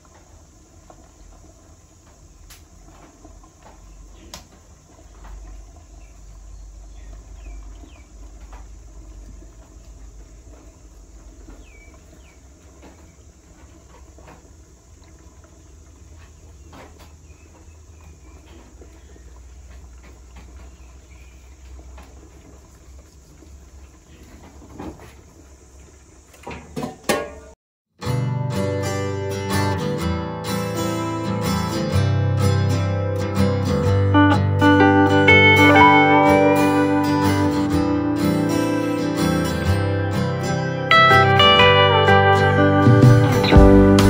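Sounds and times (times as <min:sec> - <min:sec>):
steamer pot boiling rumble: 0:00.0 - 0:27.6.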